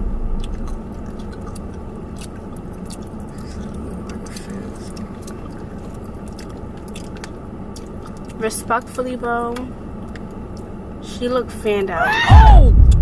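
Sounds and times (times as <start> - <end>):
car cabin hum: 0.0 - 9.7.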